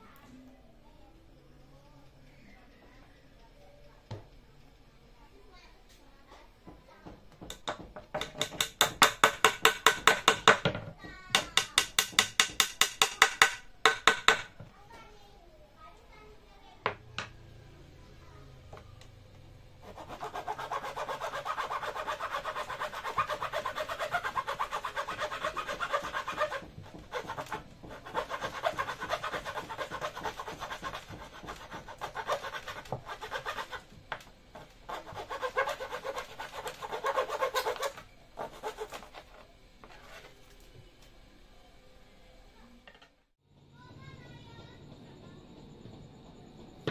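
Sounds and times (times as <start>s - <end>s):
chisel scraping wood: 19.8s - 33.8s, 34.6s - 40.4s.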